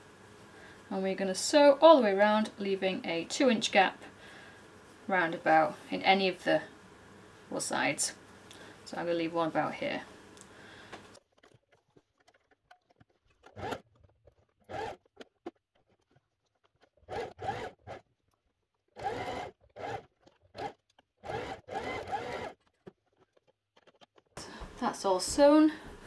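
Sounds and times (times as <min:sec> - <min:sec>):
sewing machine stitching: 0:13.3 - 0:18.1, 0:18.9 - 0:24.3.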